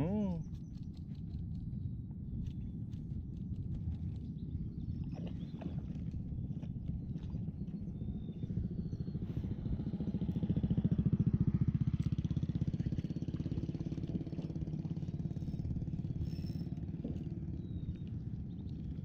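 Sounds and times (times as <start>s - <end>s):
fishing reel gears whirring: 15.3s - 17.3s.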